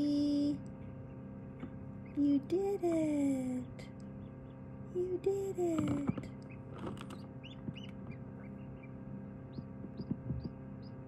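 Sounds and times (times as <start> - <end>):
ducklings peeping: 0.0 - 11.0
incubator hum: 0.0 - 11.0
soft knocks: 9.5 - 10.6.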